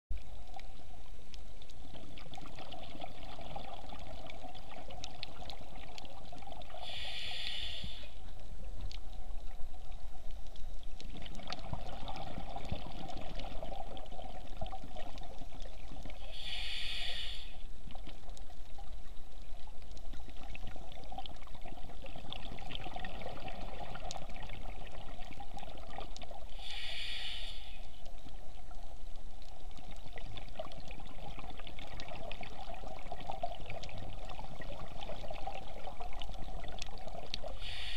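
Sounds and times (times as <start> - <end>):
steady underwater hiss: 0.2 - 37.9
bubbling exhale: 6.6 - 8.2, 16.1 - 17.7, 26.4 - 27.9, 37.4 - 37.9
regulator hissing inhale: 6.7 - 8.2, 16.2 - 17.7, 26.5 - 28.0, 37.4 - 37.9
faint clicks: 7.1 - 11.7.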